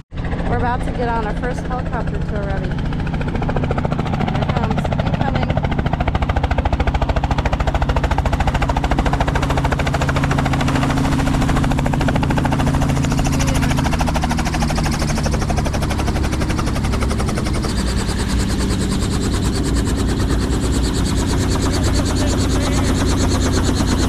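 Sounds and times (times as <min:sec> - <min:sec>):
helicopter engine hum: 0:00.0 - 0:24.0
helicopter rotor chopping: 0:00.1 - 0:24.0.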